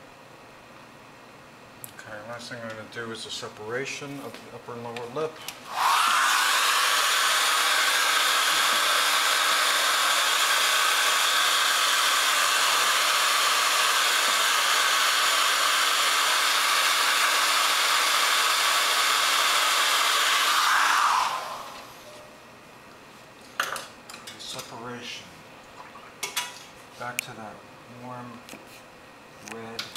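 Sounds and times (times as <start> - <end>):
hair dryer blowing: 5.7 - 22.1.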